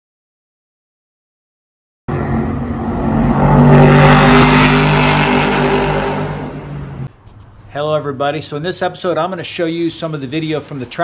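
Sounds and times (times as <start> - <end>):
race car engine passing: 2.1 - 7.1.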